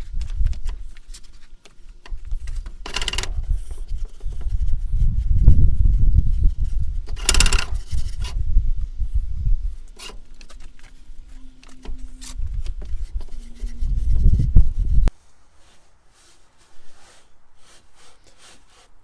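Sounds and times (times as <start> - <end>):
sand rubbed through wire mesh: 12.0 - 19.0.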